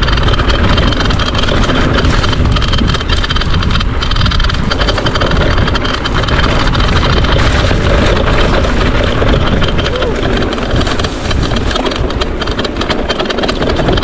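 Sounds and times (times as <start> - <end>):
mountain bike rattling on rough trail: 0.0 - 14.0
wind buffeting microphone: 0.0 - 14.0.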